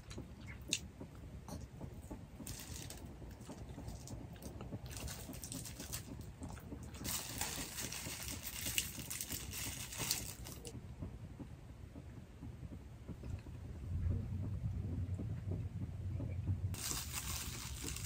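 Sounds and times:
plastic gloves crinkling: 2.4s - 3.1s, 4.9s - 6.2s, 7.0s - 10.7s, 16.8s - 18.0s.

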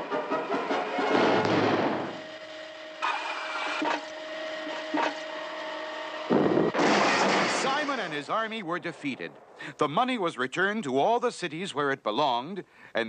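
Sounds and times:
machine whir with hum: 0.2s - 8.2s
loud rushing whoosh: 6.3s - 6.8s.

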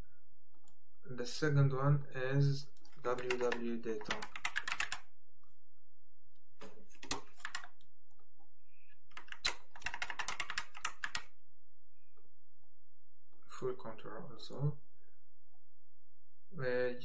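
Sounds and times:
typing on a keyboard: 2.8s - 5.0s, 7.0s - 7.8s, 9.1s - 11.3s.

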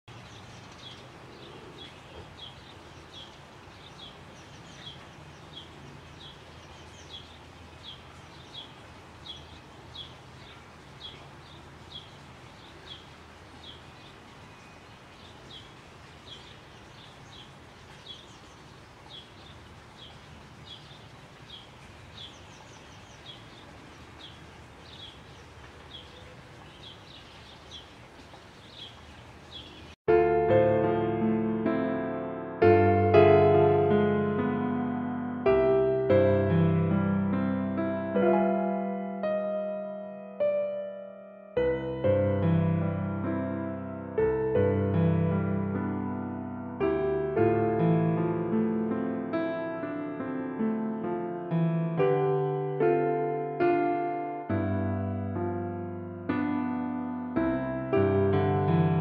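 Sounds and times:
bird chirping: 0.1s - 30.0s.

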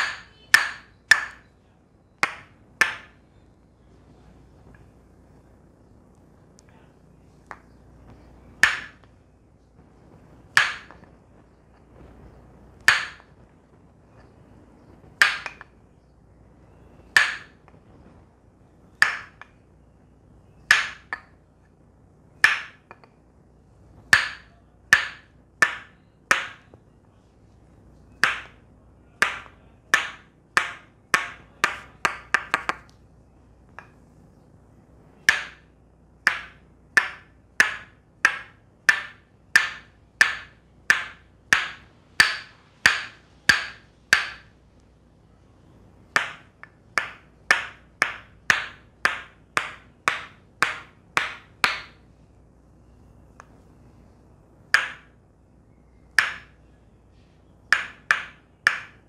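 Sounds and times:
wooden mallet knocking on peg: 0.0s - 1.5s, 2.2s - 3.2s, 8.6s - 9.0s, 10.5s - 11.1s, 12.8s - 13.3s, 15.2s - 15.7s, 17.1s - 17.6s, 19.0s - 19.6s, 20.7s - 21.4s, 22.4s - 23.2s, 24.1s - 26.7s, 28.2s - 28.6s, 29.2s - 32.9s, 35.2s - 44.5s, 46.1s - 52.0s, 54.7s - 55.2s, 56.1s - 56.6s, 57.7s - 59.0s.

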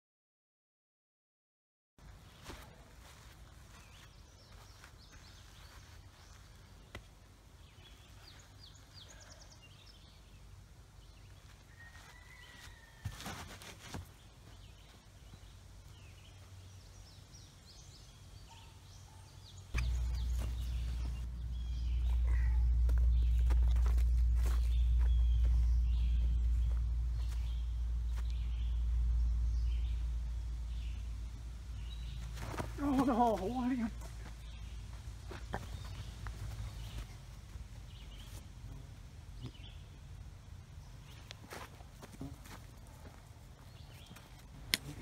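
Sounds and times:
birds chirping: 2.0s - 12.9s, 14.1s - 45.0s
low rumble on microphone: 19.8s - 41.1s.

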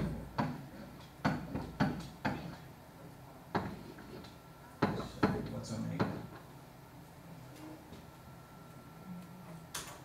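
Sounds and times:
sharp knocks and taps: 0.4s - 2.6s, 3.5s - 3.8s, 4.8s - 6.3s.

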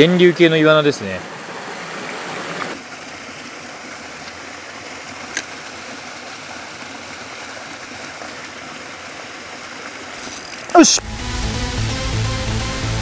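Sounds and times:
mountain stream rushing: 0.0s - 11.3s.

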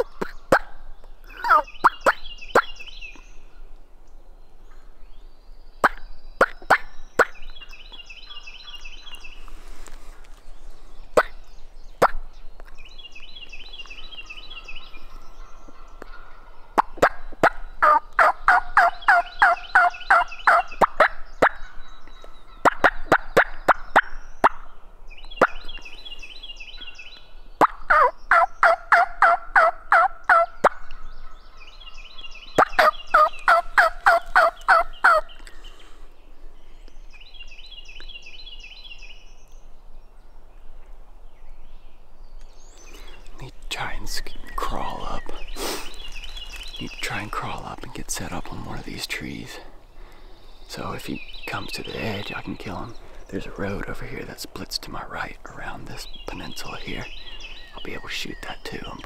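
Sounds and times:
wild turkey gobbling: 0.0s - 2.7s, 11.2s - 11.4s, 15.4s - 24.6s, 27.6s - 31.3s, 32.6s - 35.5s.

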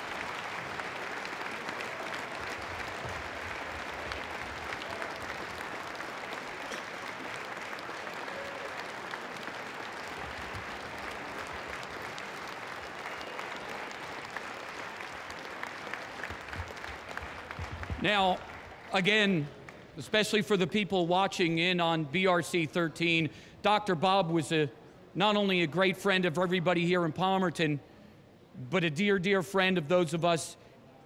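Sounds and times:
large crowd clapping: 0.0s - 20.4s.

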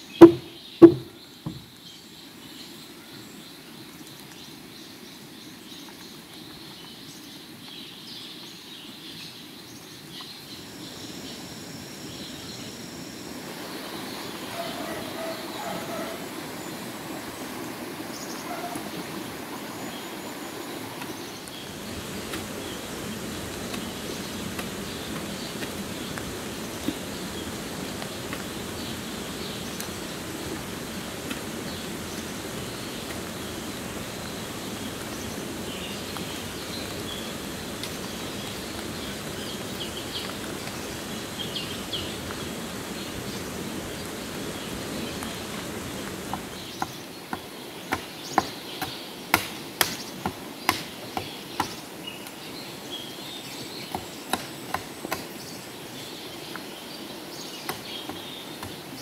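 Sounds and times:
birds chirping: 0.0s - 59.0s
tool knocking on wood: 0.2s - 1.7s
insects chirping: 10.2s - 47.6s.

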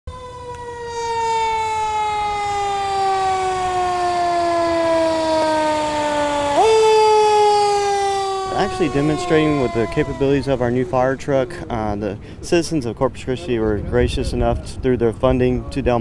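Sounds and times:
fire truck siren wailing: 0.1s - 12.3s.

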